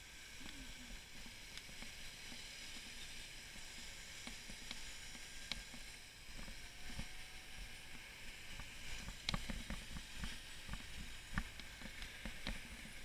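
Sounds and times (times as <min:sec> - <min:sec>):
bicycle tyres on cobblestones: 0:00.3 - 0:13.0.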